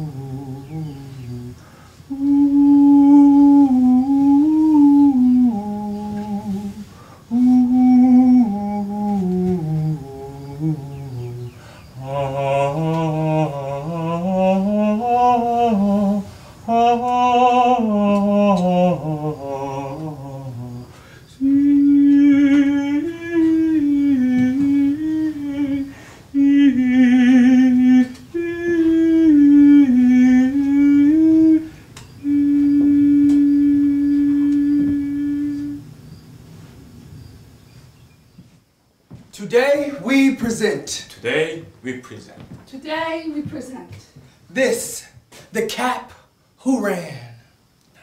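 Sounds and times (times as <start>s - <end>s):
higher voice humming: 0.0s - 36.2s
low voice humming: 0.0s - 36.2s.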